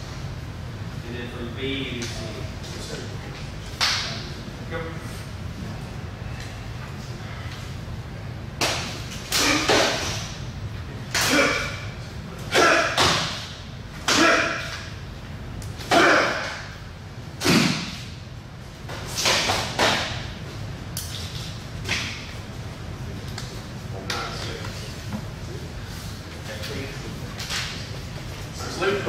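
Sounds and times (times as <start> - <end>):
slaps and thuds of strikes: 8.6 - 10.3, 12.8 - 14.8, 17.4 - 18.0, 19.1 - 20.2.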